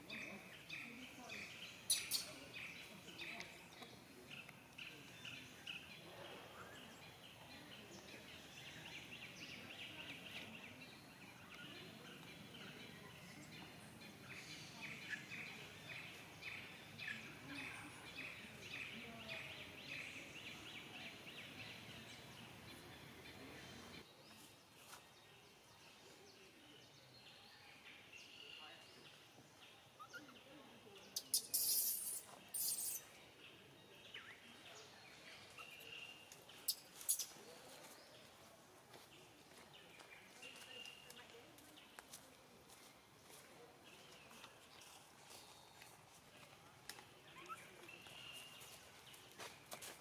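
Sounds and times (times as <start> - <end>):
faint outdoor background noise: 0.0 - 50.0
short high chirping calls: 31.2 - 33.1.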